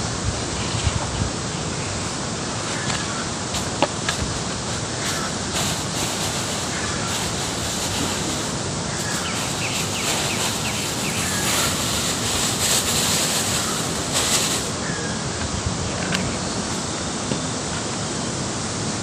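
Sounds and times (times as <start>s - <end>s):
outdoor rushing wind noise: 0.0s - 19.0s
bird chirping: 8.9s - 12.4s.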